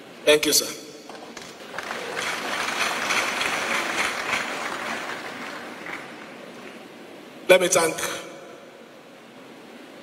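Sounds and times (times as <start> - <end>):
audience applauding: 1.2 - 6.9.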